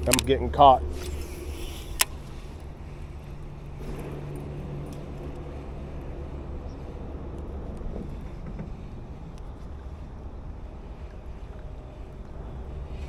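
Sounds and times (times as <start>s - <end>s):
faint low hum: 0.0s - 13.0s
wind rumbling on microphone: 0.0s - 13.0s.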